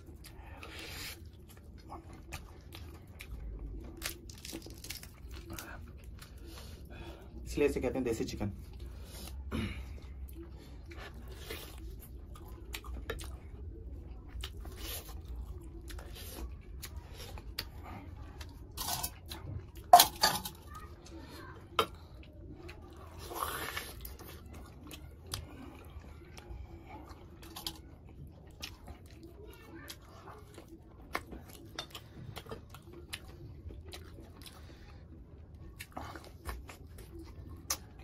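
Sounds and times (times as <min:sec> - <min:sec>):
chewing and crunching: 0:00.0 - 0:38.0
meat torn from bone: 0:03.9 - 0:05.7.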